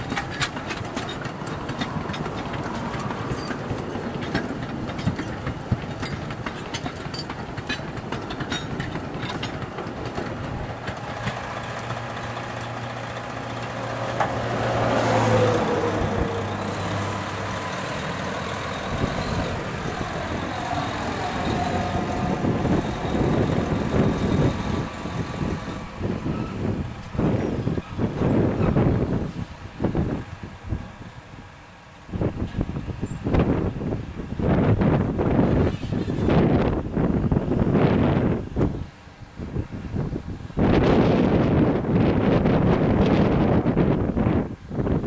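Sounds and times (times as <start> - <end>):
wheel clicks over rail joints: 0.0 - 15.8
diesel locomotive engine hum: 0.0 - 45.0.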